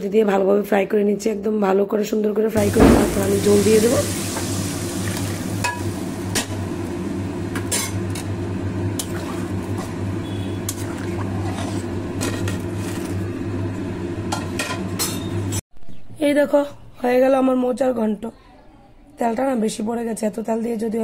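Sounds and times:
metal spatula scraping a pan: 10.3s - 13.1s.

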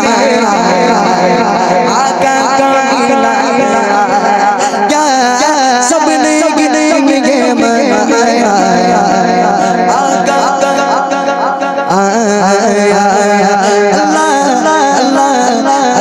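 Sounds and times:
man singing into microphone: 0.0s - 16.0s.

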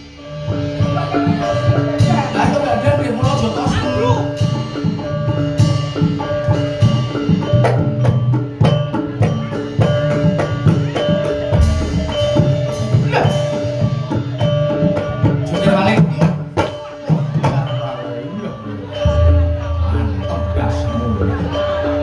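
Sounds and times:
drum strokes: 0.0s - 22.0s
mallet-struck tuned percussion: 0.0s - 22.0s.

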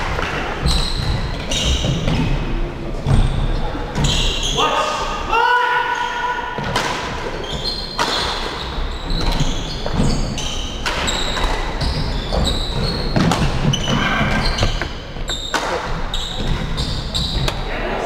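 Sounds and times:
shoes squeaking on wooden floor: 0.6s - 2.4s, 3.0s - 4.6s, 7.4s - 17.6s.

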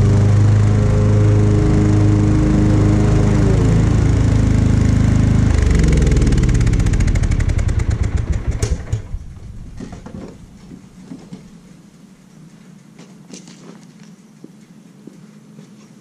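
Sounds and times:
lawn mower engine running: 0.0s - 11.6s.

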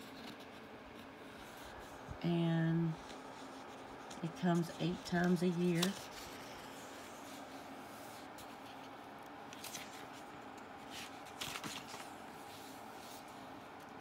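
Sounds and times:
magazine pages rustling: 2.8s - 14.0s.

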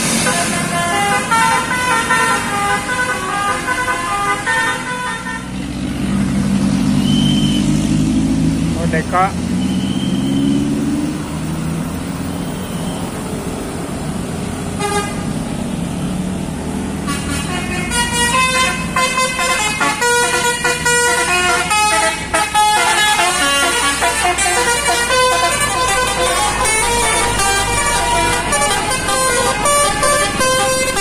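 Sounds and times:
multi-tone bus horn tune: 0.0s - 5.8s, 14.7s - 15.5s, 17.0s - 31.0s
traffic passing: 0.0s - 31.0s.

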